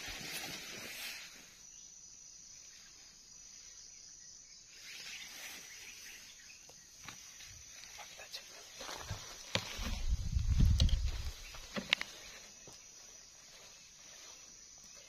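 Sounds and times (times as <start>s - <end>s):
light clicks and rustles: 8.8s - 12.8s.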